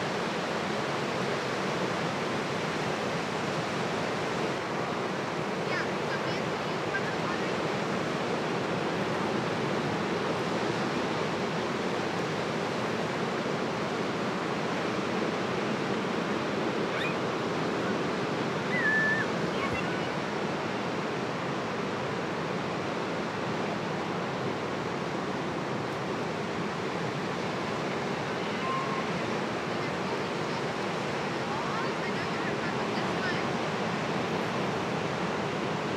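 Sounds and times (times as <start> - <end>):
surf washing over rocks: 0.0 - 35.9
brief high squeak: 16.9 - 17.2.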